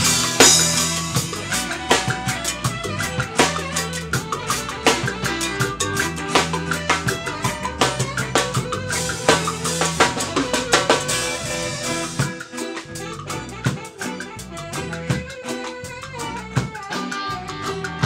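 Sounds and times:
drum kit playing: 0:00.0 - 0:18.0
electric bass notes: 0:00.0 - 0:18.0.

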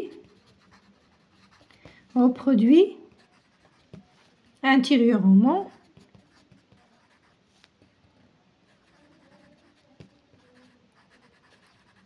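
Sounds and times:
pencil scratching on paper: 0:00.0 - 0:02.3, 0:03.1 - 0:04.4, 0:05.6 - 0:07.7, 0:08.7 - 0:12.0.

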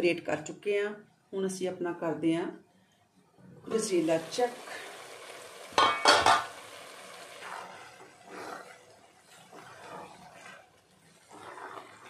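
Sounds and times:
metal cookware clanking: 0:05.8 - 0:06.5
spatula scraping metal pan: 0:07.4 - 0:12.0.

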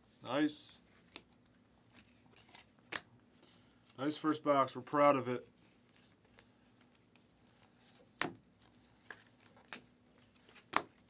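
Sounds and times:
trading cards snapping: 0:02.4 - 0:03.1.

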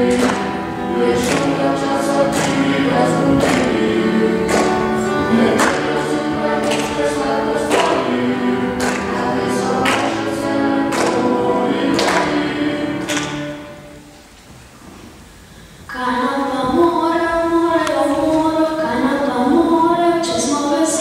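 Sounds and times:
steady beat: 0:00.0 - 0:13.6
several voices singing: 0:00.0 - 0:14.1.

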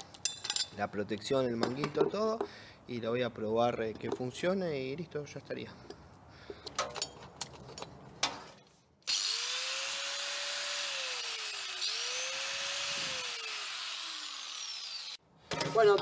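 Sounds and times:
angle grinder motor whining: 0:09.1 - 0:15.2.

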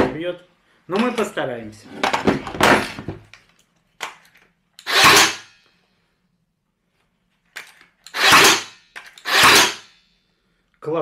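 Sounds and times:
nail gun shot: 0:04.8 - 0:05.5, 0:08.1 - 0:09.9.

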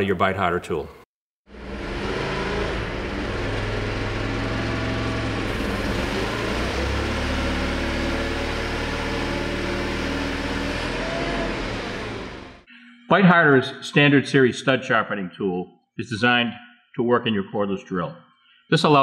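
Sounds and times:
forklift engine running: 0:01.5 - 0:12.7.

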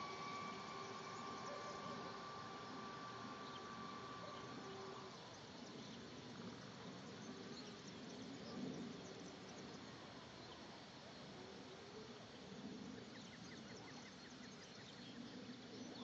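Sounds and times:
high whine of small motor: 0:00.0 - 0:10.4
faint outdoor background noise: 0:00.0 - 0:16.0.

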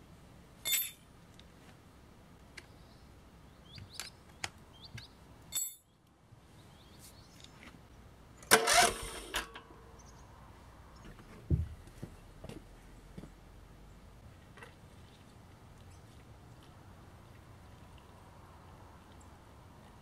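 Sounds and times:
small metallic clicks and clinks: 0:00.6 - 0:01.4, 0:05.5 - 0:05.9.

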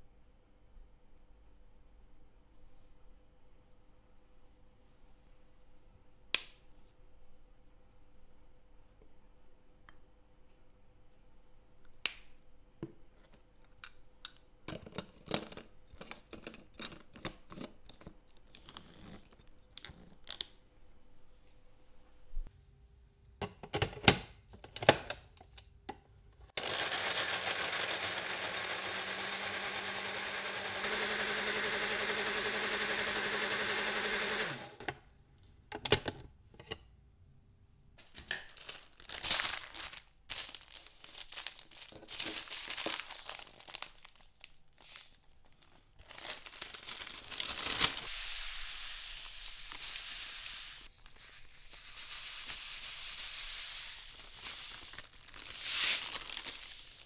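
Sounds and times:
blender running: 0:26.6 - 0:34.9.

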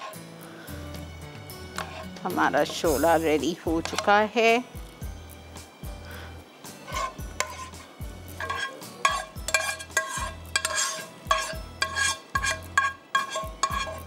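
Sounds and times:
metal spoon scraping frying pan: 0:00.0 - 0:00.2, 0:01.7 - 0:03.2, 0:03.8 - 0:04.2, 0:06.8 - 0:14.0.

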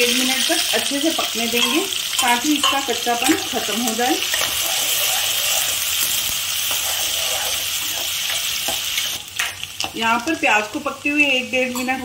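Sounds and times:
onions sizzling in hot oil: 0:00.0 - 0:12.0
metal spatula scraping pan: 0:01.6 - 0:08.8.

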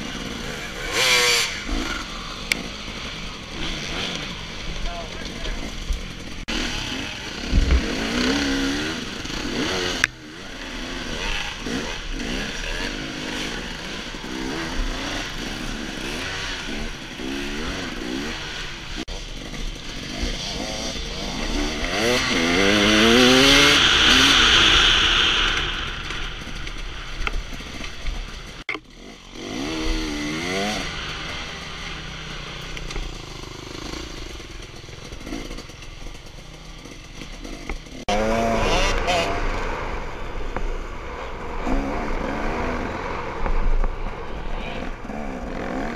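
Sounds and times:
dirt bike engine revving: 0:00.0 - 0:45.9
loud rushing hiss: 0:21.5 - 0:28.6.

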